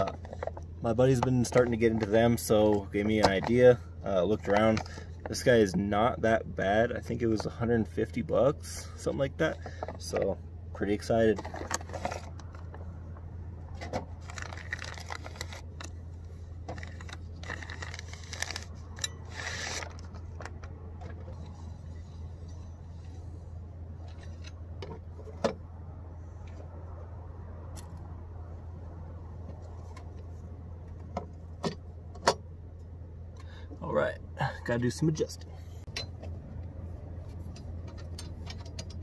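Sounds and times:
steady low hum: 0.0s - 39.0s.

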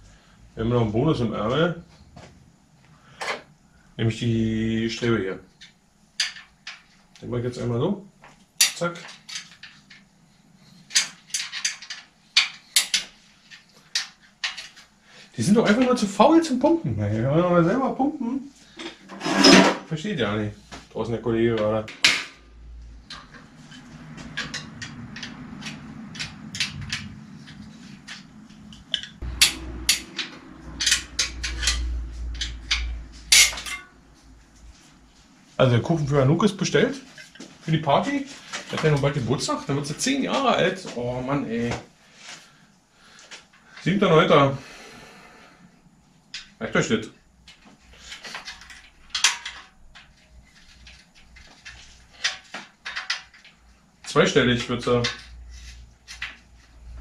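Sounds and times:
tools scraping and clicking on metal: 8.6s - 10.1s, 10.7s - 14.9s, 18.8s - 19.8s, 23.0s - 34.0s, 48.0s - 53.6s
metal tools clinking on bicycle: 23.1s - 34.0s
loud metallic knocks: 29.2s - 33.9s.

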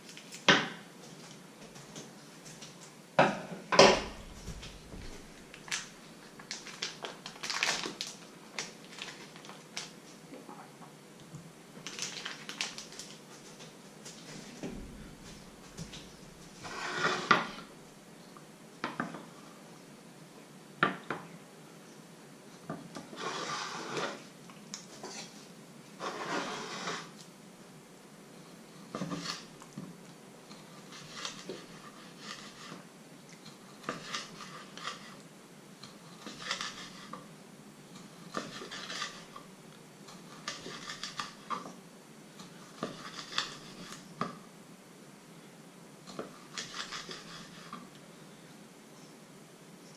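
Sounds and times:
rubbing sounds of handling: 12.9s - 17.8s, 24.9s - 27.2s.

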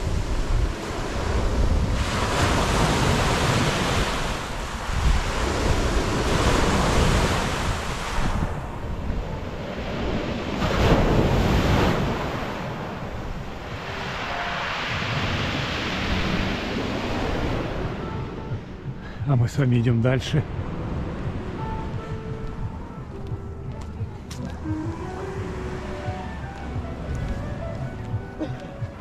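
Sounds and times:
waves washing on pebble beach: 0.0s - 18.0s
wind buffeting microphone: 0.0s - 29.0s.

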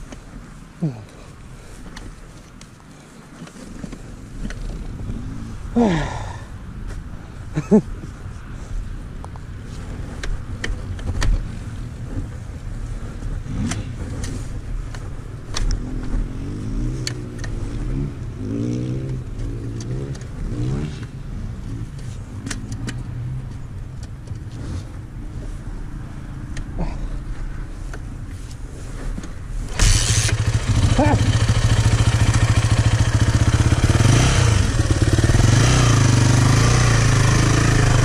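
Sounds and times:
motocross bike engine revving: 29.7s - 38.0s.

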